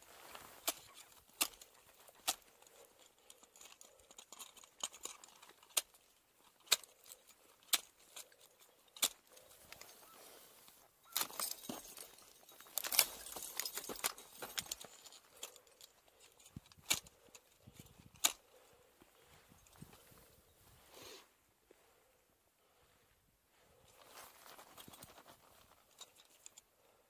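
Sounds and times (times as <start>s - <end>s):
metal gear clinking: 11.1s - 16.3s.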